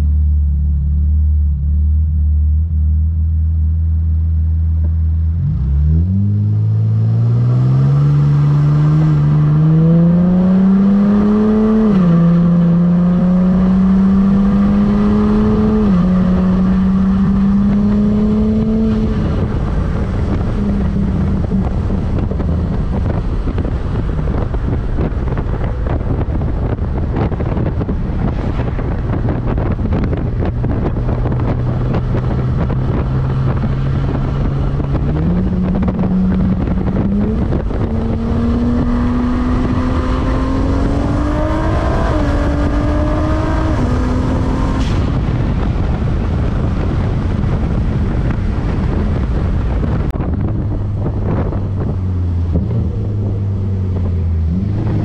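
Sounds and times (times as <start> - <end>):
car engine accelerating: 0.0 - 55.0
wind and road noise: 0.0 - 55.0.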